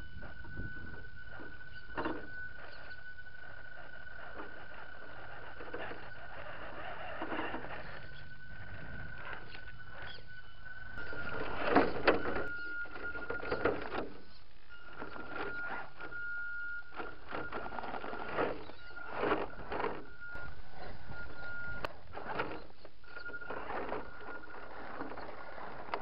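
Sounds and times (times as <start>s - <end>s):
electric motor whining: 0.0s - 26.0s.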